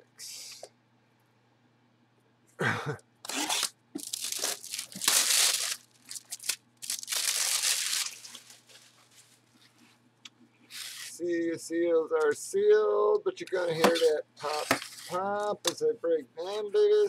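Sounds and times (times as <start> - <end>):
cardboard box tearing and crunching: 3.3 - 8.4.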